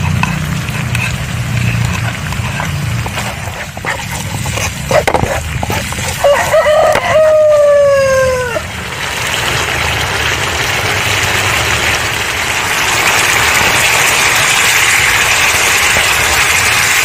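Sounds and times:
spatula scraping a frying pan: 0.0s - 7.0s
rooster crowing: 6.0s - 8.7s.

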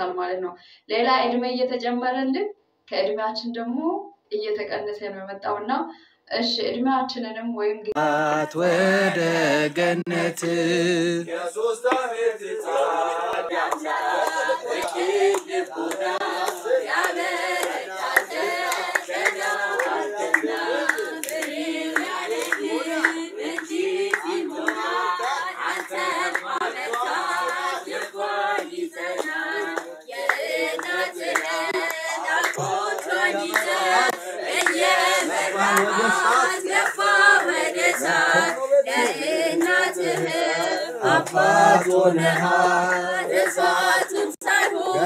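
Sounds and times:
group singing a chant: 7.9s - 45.0s
hand clapping: 11.8s - 45.0s.

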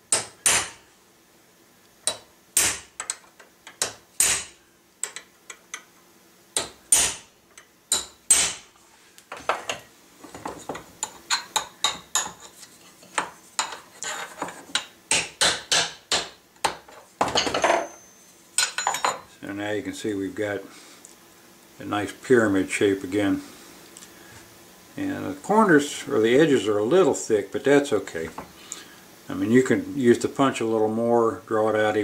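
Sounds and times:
hammer striking steel punch: 0.1s - 0.8s, 2.1s - 2.9s, 3.8s - 4.6s, 6.6s - 7.3s, 7.9s - 8.6s.

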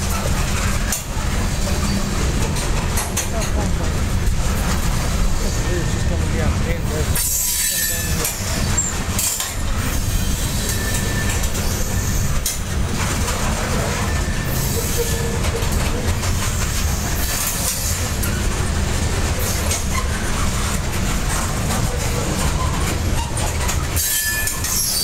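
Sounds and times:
train wheels rumbling on rails: 0.0s - 25.0s
wheel clacks: 10.6s - 25.0s.

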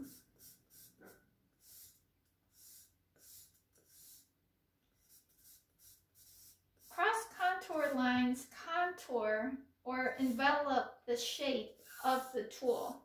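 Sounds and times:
charcoal scratching on paper: 0.0s - 4.3s, 5.0s - 8.0s, 10.1s - 10.6s, 11.6s - 13.0s.

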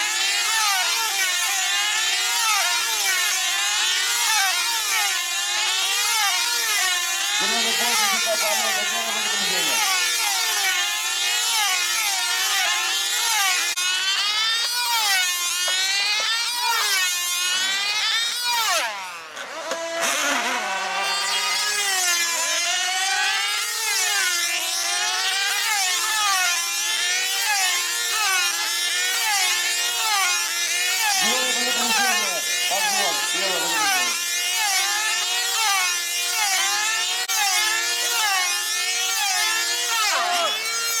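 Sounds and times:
model aircraft engines racing: 0.0s - 41.0s.

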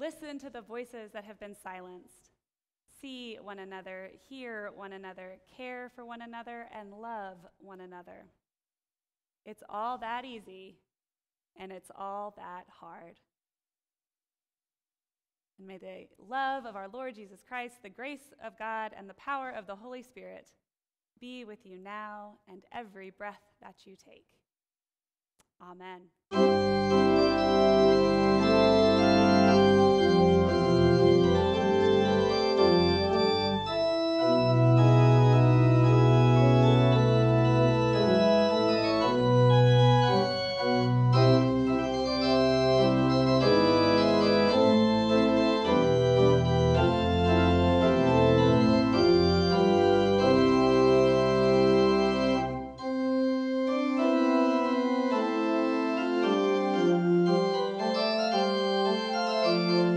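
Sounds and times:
organ playing chords: 26.3s - 59.9s
deep bass pedal notes: 26.4s - 52.7s.

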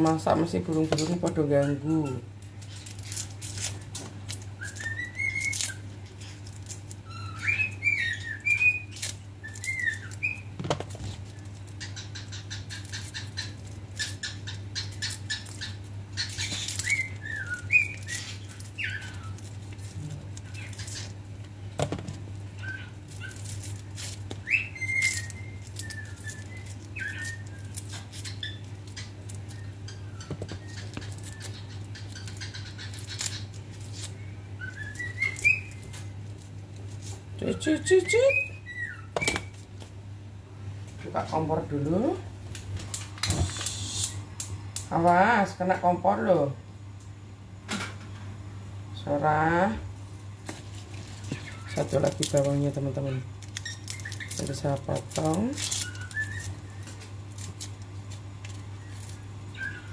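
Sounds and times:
steady low hum: 0.0s - 59.9s
birds whistling: 4.6s - 6.4s, 7.0s - 10.6s, 11.3s - 19.6s, 22.6s - 36.2s, 37.4s - 39.6s, 51.3s - 52.1s, 53.1s - 54.5s, 55.2s - 57.0s, 58.6s - 59.9s
bird clicks and flutters: 53.4s - 54.5s.

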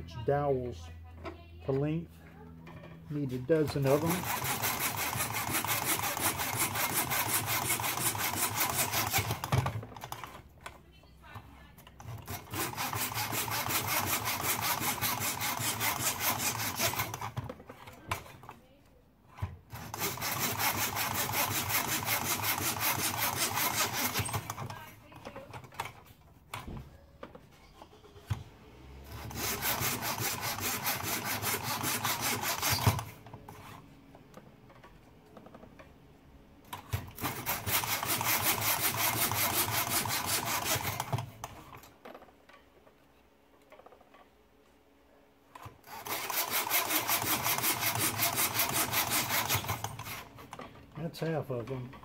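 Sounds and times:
hand saw cutting wood: 3.1s - 10.4s, 12.0s - 18.6s, 19.7s - 26.1s, 27.9s - 33.8s, 36.7s - 41.9s, 45.6s - 52.0s.

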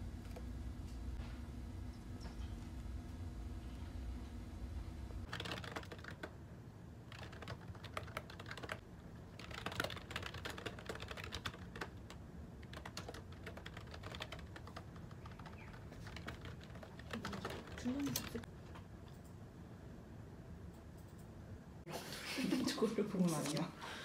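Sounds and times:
low hum: 0.0s - 5.3s
typing on computer keyboard: 5.3s - 6.4s, 7.1s - 19.4s.

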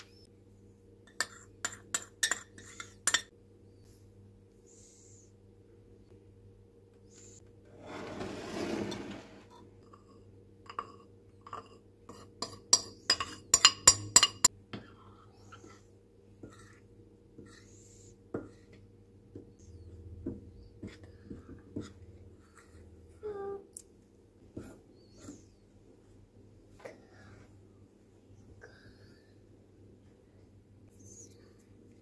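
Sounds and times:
spoon scraping and tapping: 1.1s - 3.3s, 9.5s - 14.5s
spoon clinking on bowl: 12.4s - 14.5s.

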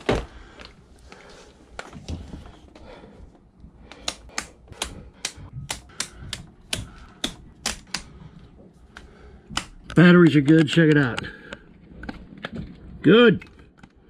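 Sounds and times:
toggle switches clicking: 3.9s - 8.1s.

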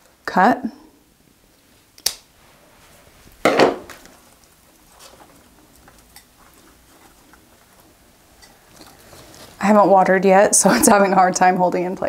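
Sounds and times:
scissors snipping stem: 2.0s - 2.2s
potting mix crunching: 3.9s - 10.0s
small clicks and scrapes: 4.4s - 9.6s.

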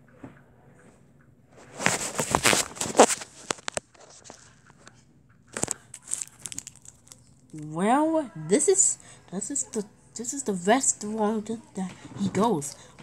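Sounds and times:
plastic wrapper crinkling: 1.7s - 4.5s, 5.5s - 7.6s.

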